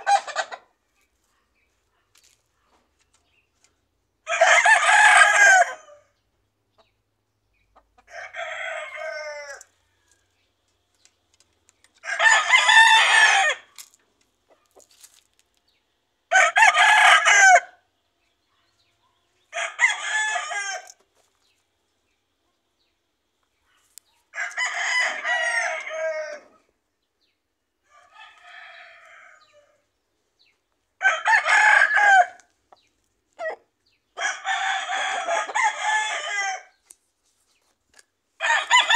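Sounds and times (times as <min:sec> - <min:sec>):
roosters crowing: 0:00.0 - 0:00.6, 0:04.2 - 0:06.1, 0:08.0 - 0:10.4, 0:12.0 - 0:13.9, 0:16.3 - 0:17.8, 0:19.5 - 0:21.0, 0:24.3 - 0:26.7, 0:27.8 - 0:29.9, 0:31.0 - 0:32.5, 0:34.2 - 0:36.8, 0:38.4 - 0:38.9.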